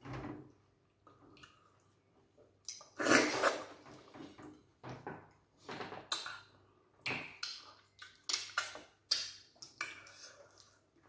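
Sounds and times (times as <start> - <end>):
wet eating slurps: 3.0 - 3.8
lip smacks: 6.1 - 10.8.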